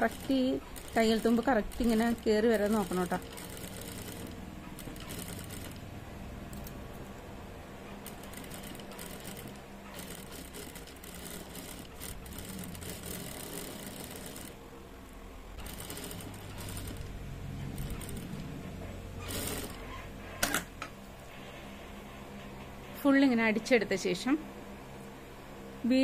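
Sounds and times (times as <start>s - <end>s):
sewing machine running: 0.0s - 6.8s, 7.8s - 14.8s, 15.5s - 20.2s.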